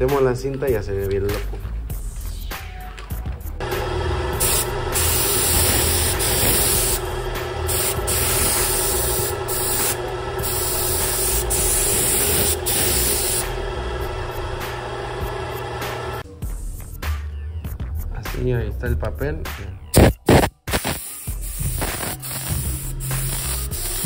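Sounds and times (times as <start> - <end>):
paint spray gun hissing: 3.6 - 16.2, 20.0 - 24.0.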